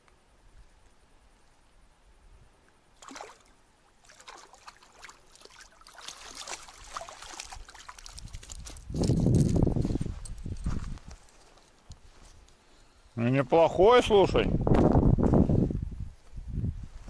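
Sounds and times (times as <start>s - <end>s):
fish splashing in shallow water: 3.0s - 8.8s.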